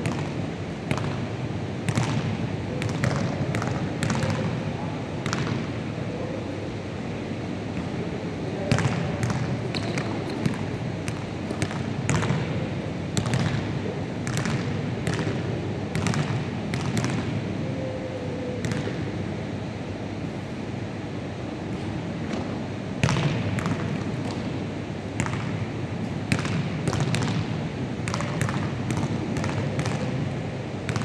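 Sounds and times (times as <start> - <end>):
low background noise: 0.0 - 31.0
basketballs bouncing on wooden floor: 0.9 - 1.2, 1.9 - 4.5, 8.7 - 17.3, 23.0 - 24.5, 25.2 - 25.6, 26.3 - 30.2.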